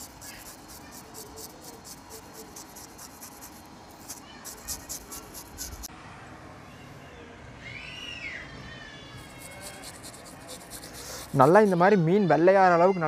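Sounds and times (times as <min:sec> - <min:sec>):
fingers scrubbing fish skin: 0:00.0 - 0:05.9, 0:09.2 - 0:11.8.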